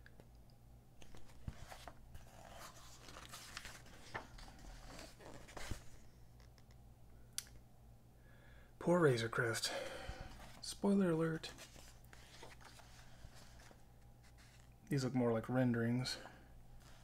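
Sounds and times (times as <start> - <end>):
magazine pages rustling: 1.0 - 6.1, 10.2 - 14.8.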